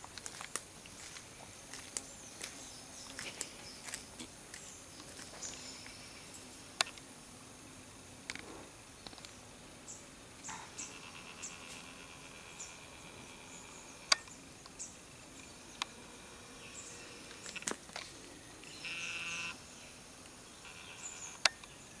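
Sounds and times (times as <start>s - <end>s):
faint high insect drone: 0.0s - 22.0s
buzzing call: 10.4s - 17.8s, 18.6s - 21.7s.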